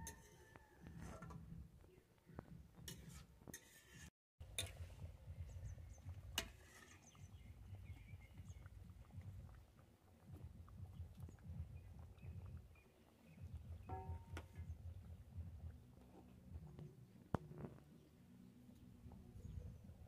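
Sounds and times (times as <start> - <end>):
metal spatula scraping wok: 0.0 - 1.4, 2.8 - 5.0, 6.3 - 7.2.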